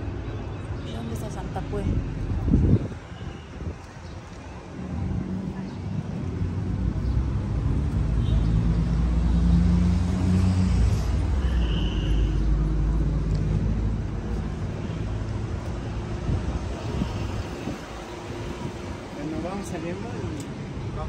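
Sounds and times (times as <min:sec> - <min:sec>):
vehicle engine rumbling: 0:01.0 - 0:21.0.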